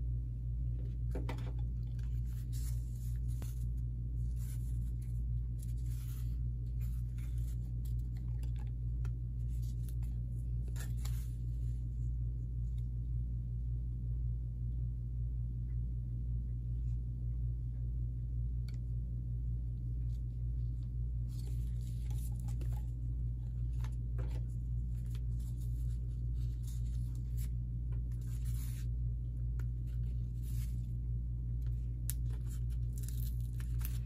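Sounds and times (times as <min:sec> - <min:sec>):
steady low hum: 0:00.0 - 0:34.0
paper and twine crinkling: 0:01.8 - 0:08.8, 0:21.2 - 0:28.9, 0:29.6 - 0:31.0, 0:31.6 - 0:34.0.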